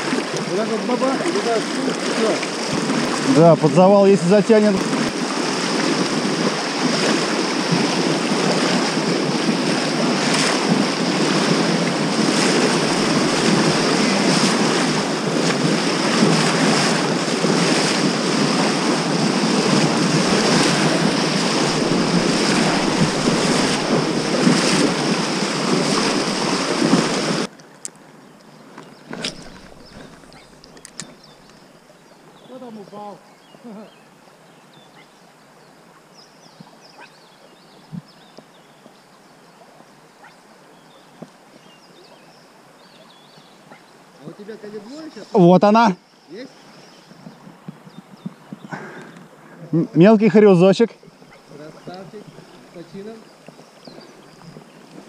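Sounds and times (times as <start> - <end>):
water splashes: 0.0 - 27.5, 29.0 - 31.7, 48.8 - 55.0
river water rushing: 0.0 - 28.2, 29.0 - 32.8.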